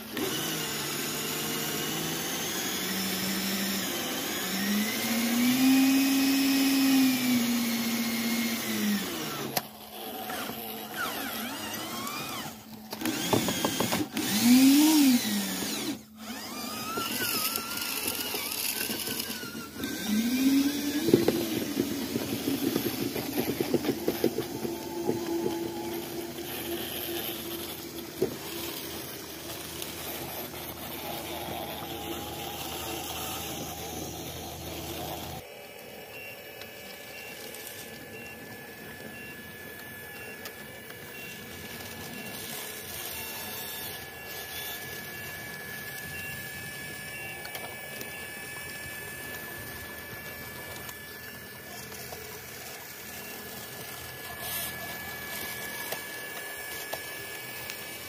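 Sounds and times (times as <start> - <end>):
high-pitched whine: 0.0 - 58.0
small electric motors whirring: 0.0 - 58.0.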